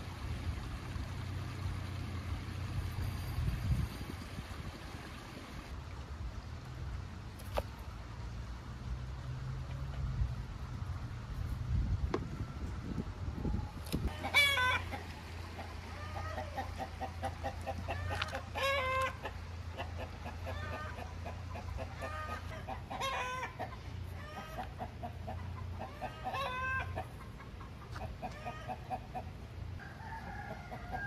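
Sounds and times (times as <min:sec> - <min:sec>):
chickens clucking: 0:14.0 - 0:31.0
chicken drawn-out call: 0:14.1 - 0:31.0.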